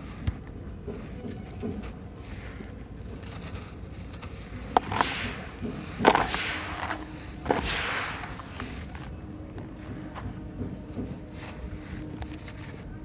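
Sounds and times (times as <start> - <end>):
sand and crumbs falling: 1.8 - 10.2.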